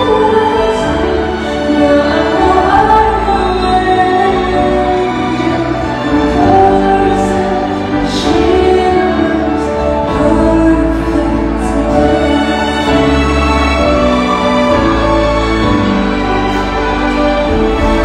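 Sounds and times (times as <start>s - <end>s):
woman singing a slow ballad: 0.0s - 13.3s
band accompaniment: 0.0s - 18.0s.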